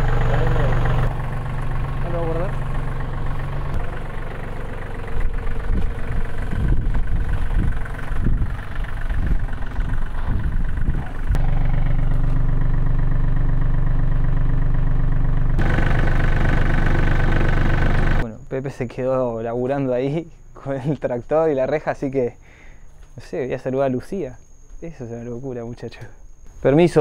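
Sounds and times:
tractor diesel engine idling: 0.0 - 18.2
low thumps and rumbles: 0.8 - 12.5.

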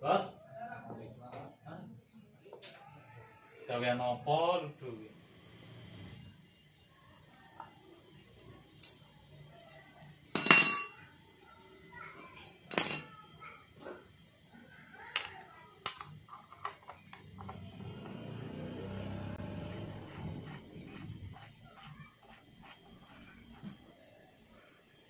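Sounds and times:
metal hand tools clinking: 10.3 - 11.0, 12.7 - 13.3.

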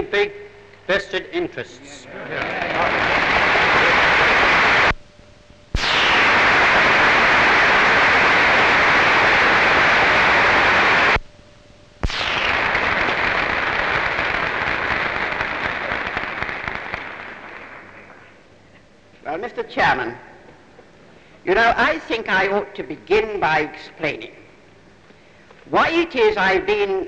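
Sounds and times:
audience applauding: 2.2 - 5.0, 12.5 - 18.3.

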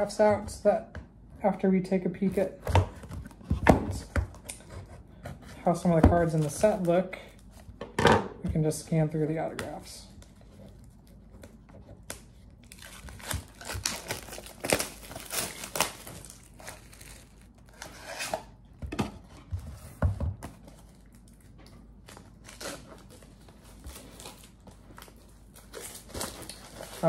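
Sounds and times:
cardboard and plastic crinkling: 9.4 - 18.6, 19.2 - 27.0.

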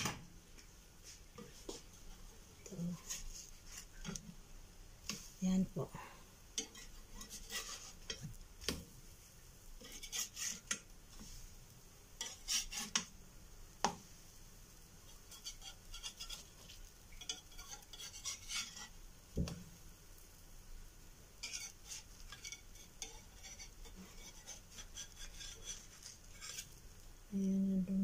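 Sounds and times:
metal spatula scraping and tapping pan: 1.4 - 4.4, 6.5 - 8.9, 9.7 - 11.4, 12.2 - 13.2, 15.0 - 19.6, 21.4 - 26.8.

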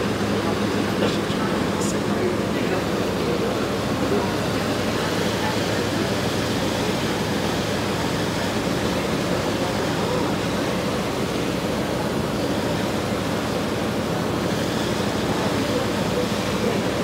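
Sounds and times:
low engine drone: 0.0 - 17.0
water churning along hull: 0.0 - 17.0
wind: 0.0 - 17.0.

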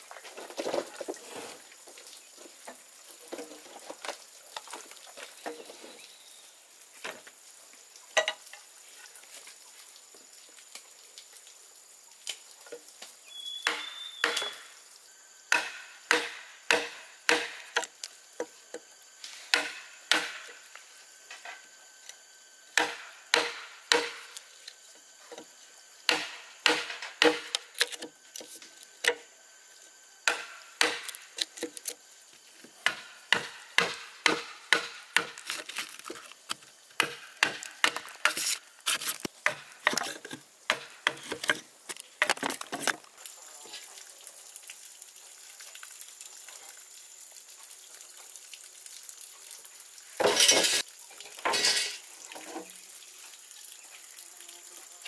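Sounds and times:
hand tool striking wood: 13.6 - 14.6, 15.5 - 17.9, 19.5 - 20.5, 22.8 - 24.4, 26.1 - 28.1, 30.2 - 31.8, 32.8 - 35.7, 37.0 - 41.6.

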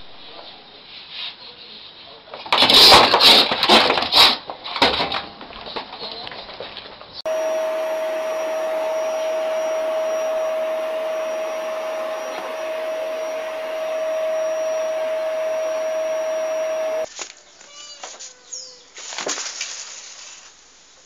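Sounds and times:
electric motor whining: 7.3 - 17.1.

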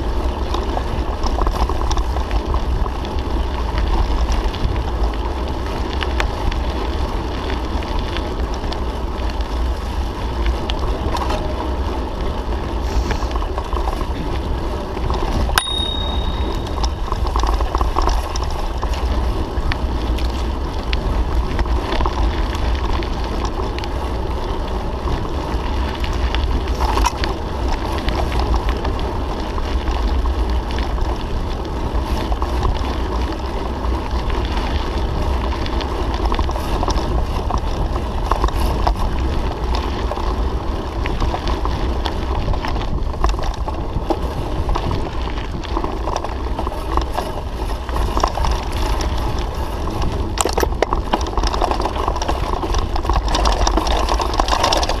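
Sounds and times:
bike rattling over ground: 0.0 - 55.0
wind rumble on microphone: 0.0 - 55.0
sharp metallic ping: 15.6 - 16.8.

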